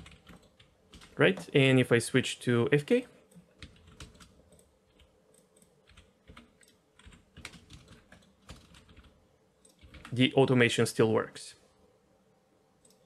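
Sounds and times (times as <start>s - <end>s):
keyboard keys clicking: 0.0s - 1.5s, 3.3s - 10.2s.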